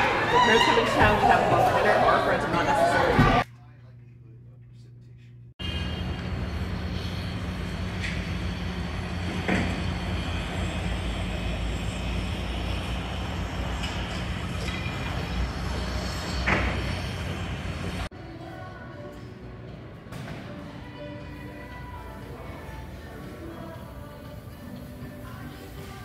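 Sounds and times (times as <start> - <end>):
steady low hum: 3.4 - 18.1
city traffic roar: 5.6 - 18.1.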